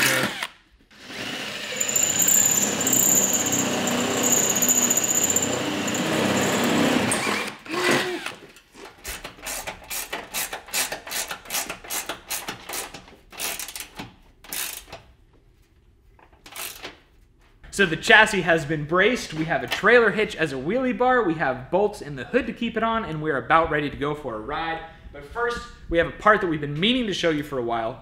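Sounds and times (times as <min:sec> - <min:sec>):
drill boring through metal: 0:00.0 - 0:08.3
ratchet wrench clicking: 0:01.8 - 0:06.0, 0:14.5 - 0:15.0, 0:16.5 - 0:16.8.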